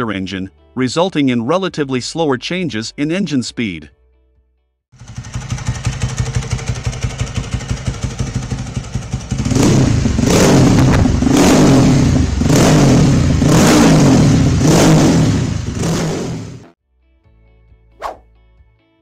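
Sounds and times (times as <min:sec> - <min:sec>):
motorcycle engine idling and revving: 0:05.0 - 0:16.8.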